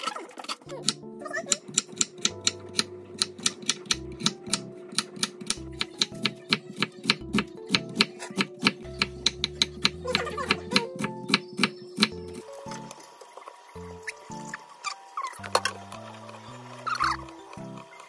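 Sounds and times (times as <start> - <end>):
soft background music: 0.6 - 18.0
knife chopping on wooden board: 0.8 - 12.2.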